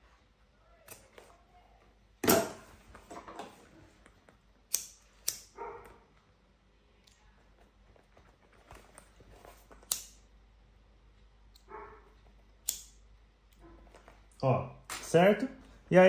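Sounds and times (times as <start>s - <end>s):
lighter flicking: 4.7s - 5.6s, 9.9s - 10.2s, 12.6s - 13.0s
dog barking: 5.5s - 6.1s, 11.7s - 12.2s.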